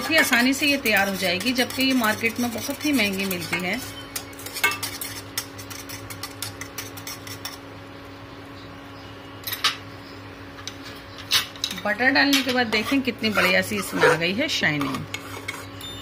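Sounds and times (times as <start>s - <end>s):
whisk scraping a saucepan: 0.0s - 7.6s, 12.5s - 16.0s
steady low hum: 0.0s - 16.0s.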